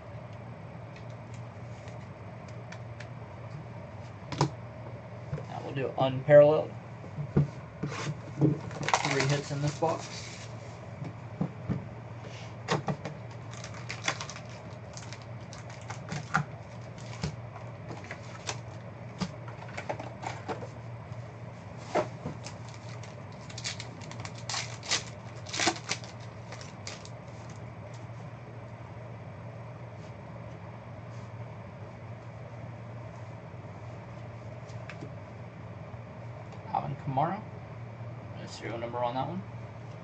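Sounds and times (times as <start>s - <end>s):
low steady hum: 0.0s - 40.0s
cardboard and wrappers crinkling: 8.6s - 10.2s, 13.3s - 18.8s, 22.3s - 27.6s.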